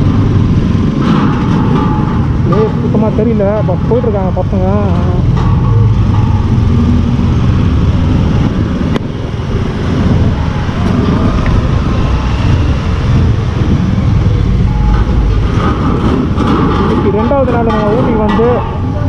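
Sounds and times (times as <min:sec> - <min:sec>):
motorcycle engine running: 0:00.0 - 0:18.2
wind rumble on microphone: 0:00.0 - 0:19.0.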